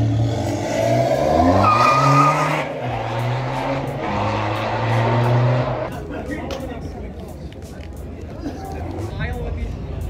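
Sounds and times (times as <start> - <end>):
car engine revving: 0.0 - 5.9.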